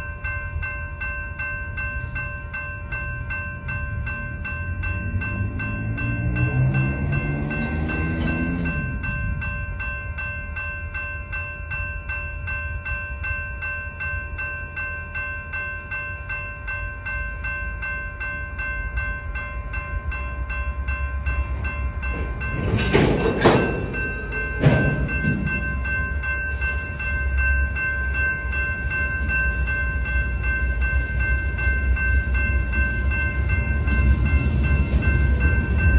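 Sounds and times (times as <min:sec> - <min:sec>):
crossing warning bell ringing: 0:00.0 - 0:35.9
freight train rumbling: 0:00.0 - 0:35.9
train cars clattering: 0:01.0 - 0:12.6, 0:18.2 - 0:35.9.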